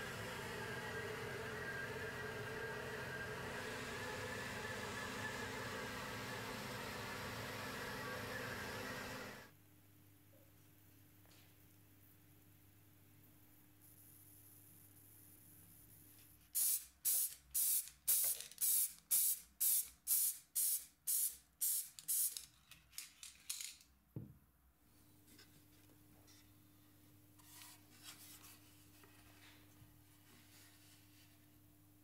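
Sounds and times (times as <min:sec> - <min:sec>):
aerosol spray hissing: 0:16.6 - 0:22.4.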